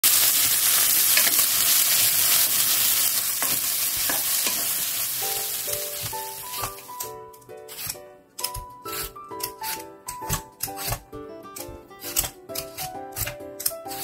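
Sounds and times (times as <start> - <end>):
food sizzling in frying pan: 0.0 - 7.0.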